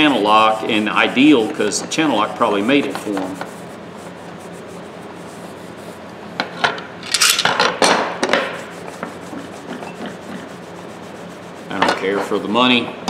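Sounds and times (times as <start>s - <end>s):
cloth rag wiping metal: 0.0s - 6.1s, 8.5s - 12.6s.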